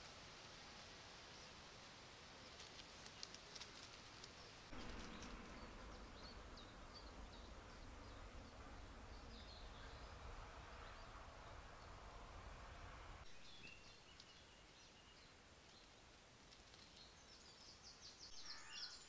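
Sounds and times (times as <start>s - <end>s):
low steady hiss: 0.0s - 19.0s
faint bird chirps: 16.8s - 19.0s.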